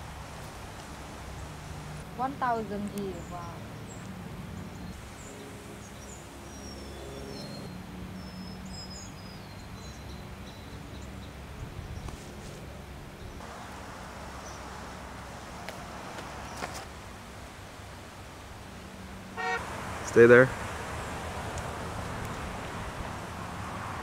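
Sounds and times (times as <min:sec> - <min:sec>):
small birds chirping: 0:01.3 - 0:15.0.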